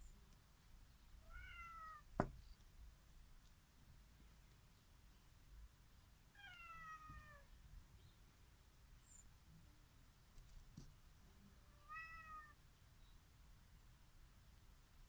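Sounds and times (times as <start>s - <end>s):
cat meowing faintly: 1.2s - 2.1s, 6.4s - 7.5s, 11.6s - 12.6s.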